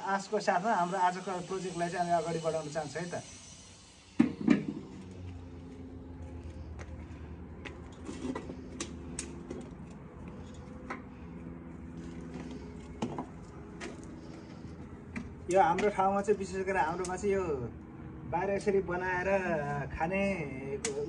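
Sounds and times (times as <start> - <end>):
firewood sticks clicking: 7.9 - 11.0.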